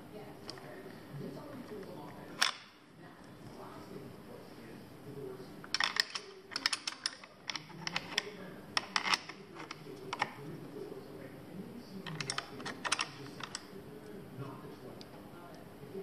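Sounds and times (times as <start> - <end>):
plastic clicks and rattles: 5.7 - 10.4, 12.0 - 13.7.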